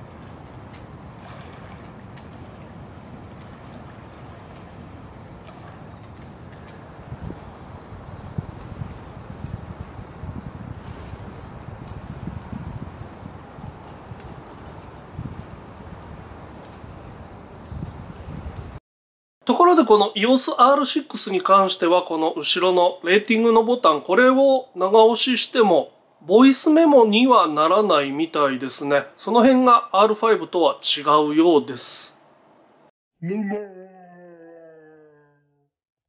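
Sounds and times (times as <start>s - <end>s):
insects trilling: 0.0s - 18.8s.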